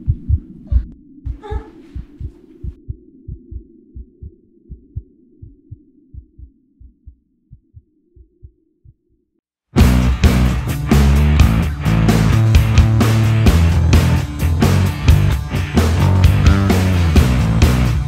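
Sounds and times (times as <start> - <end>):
heartbeat thumps: 0.0 - 9.2
loud rock music: 9.8 - 18.0.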